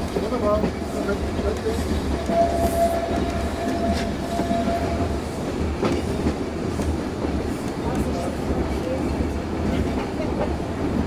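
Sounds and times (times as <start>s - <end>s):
train carriages rumbling on track: 0.0s - 11.0s
wheels squealing on curve: 2.2s - 5.2s.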